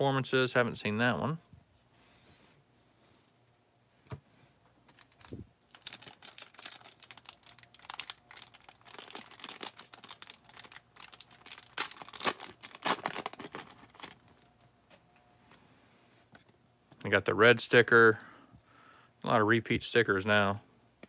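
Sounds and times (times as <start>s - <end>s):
wrapper crinkling and tearing: 4.9s - 14.5s.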